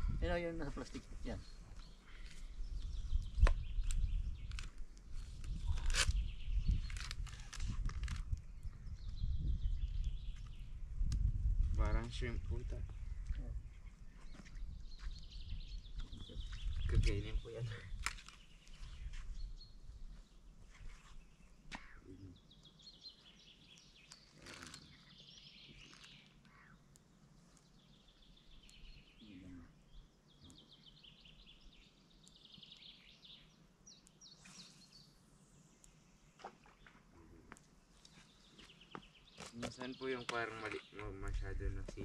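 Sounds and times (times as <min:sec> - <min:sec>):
songbird calls and trills: 0:00.1 - 0:42.0
quiet lakeside ambience: 0:17.4 - 0:41.2.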